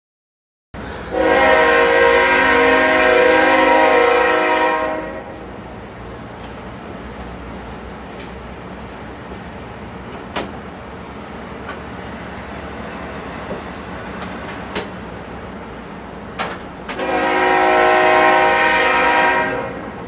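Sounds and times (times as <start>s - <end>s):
diesel locomotive horn: 0.8s - 5.7s, 16.9s - 20.0s
train rumble: 0.8s - 20.0s.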